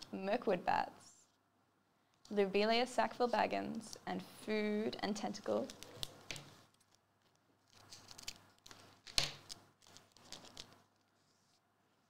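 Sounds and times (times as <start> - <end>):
soft rustling of card packaging: 5.2 - 12.0.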